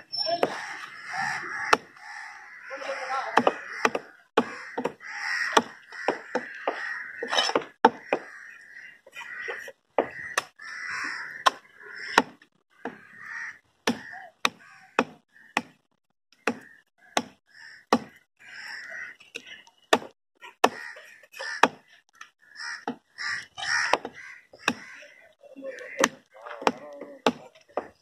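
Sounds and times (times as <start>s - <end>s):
crows cawing: 0.4s - 15.8s, 16.4s - 19.2s, 20.4s - 27.4s
cleaver chopping on wooden block: 3.4s - 8.3s, 13.9s - 15.8s, 16.4s - 18.2s, 19.9s - 21.9s, 23.8s - 25.0s, 26.0s - 28.0s.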